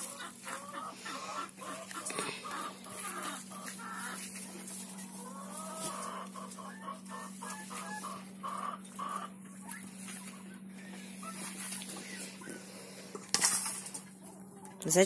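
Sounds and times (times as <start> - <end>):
hens clucking: 0.0 - 15.0.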